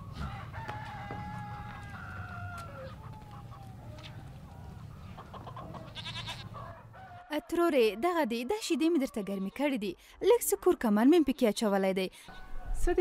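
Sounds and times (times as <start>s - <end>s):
rooster crowing: 0.0s - 8.2s, 12.3s - 13.0s.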